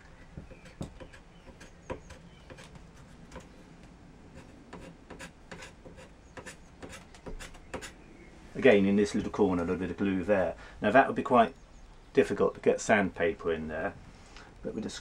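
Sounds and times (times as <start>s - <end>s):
card scraper scratching wood: 0.5s - 3.6s, 4.4s - 8.0s.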